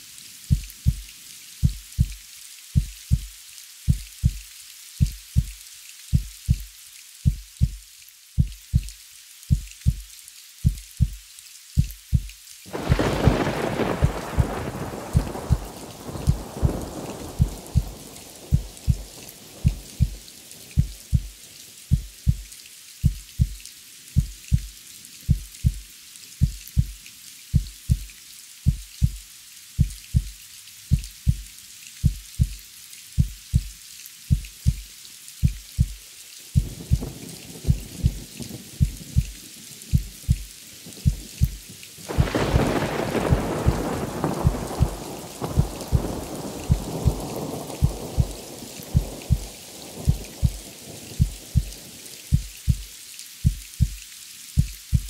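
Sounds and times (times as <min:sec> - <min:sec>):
steady rain: 0:00.0 - 0:55.0
heartbeat thumping: 0:00.5 - 0:02.2, 0:02.8 - 0:03.3, 0:03.9 - 0:04.4, 0:05.0 - 0:06.7, 0:07.3 - 0:07.8, 0:08.4 - 0:11.2, 0:11.8 - 0:20.2, 0:20.8 - 0:22.4, 0:23.0 - 0:23.6, 0:24.2 - 0:24.7, 0:25.3 - 0:25.8, 0:26.4 - 0:27.0, 0:27.6 - 0:28.1, 0:28.7 - 0:29.2, 0:29.8 - 0:32.6, 0:33.2 - 0:34.8, 0:35.4 - 0:36.0, 0:36.6 - 0:41.6, 0:42.2 - 0:50.6, 0:51.2 - 0:54.0, 0:54.6 - 0:55.0
thunder rumble: 0:12.7 - 0:21.3, 0:36.6 - 0:39.4, 0:41.0 - 0:52.8.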